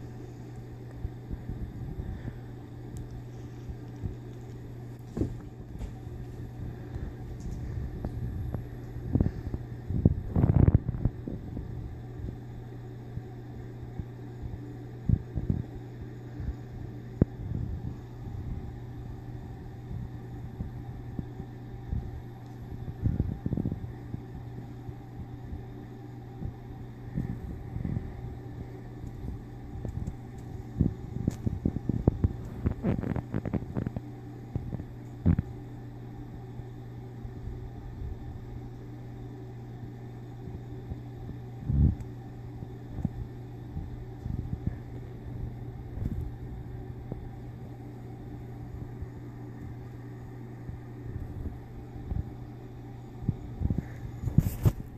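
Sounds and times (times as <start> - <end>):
steady low hum: 0.0 - 54.9
cats play-fighting rustles and bumps: 3.3 - 9.6, 53.7 - 54.9.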